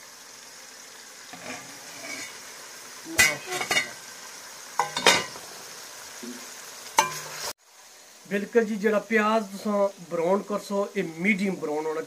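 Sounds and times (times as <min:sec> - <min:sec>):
onions sizzling in oil: 0:00.0 - 0:12.0
metal clatters against pan: 0:03.2 - 0:04.0, 0:04.8 - 0:05.4.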